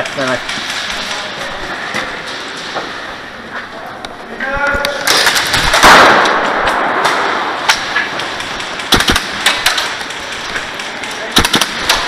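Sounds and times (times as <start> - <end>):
airsoft gun shots: 5.1 - 8.0, 8.6 - 10.0, 11.3 - 12.0
loud noisy blast: 5.3 - 7.6.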